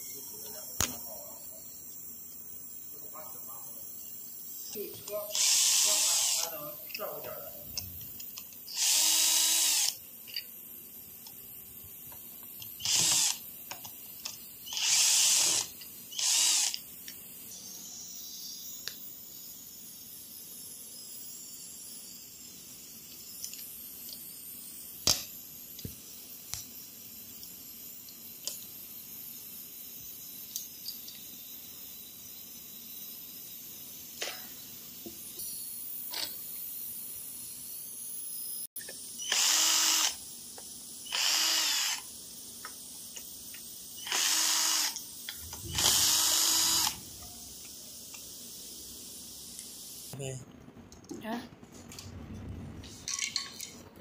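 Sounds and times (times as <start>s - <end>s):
cordless drill driving screws: 5.3s - 6.5s, 8.7s - 10.0s, 12.8s - 13.4s, 14.7s - 16.8s, 39.2s - 40.2s, 41.1s - 42.0s, 44.0s - 47.1s.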